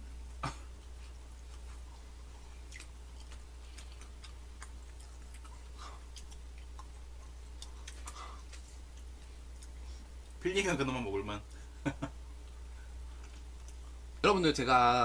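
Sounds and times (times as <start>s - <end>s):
low hum: 0.0s - 15.0s
chewing mouth clicks and smacks: 2.4s - 10.4s, 13.2s - 13.9s.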